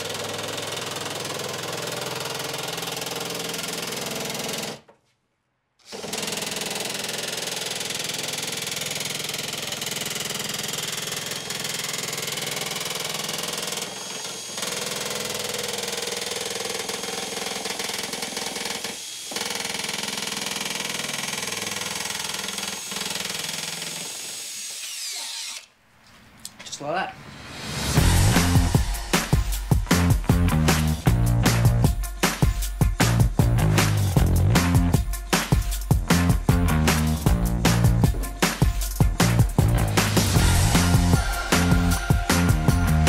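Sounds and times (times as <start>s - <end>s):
drill nibbler chattering through steel: 5.8s - 25.7s.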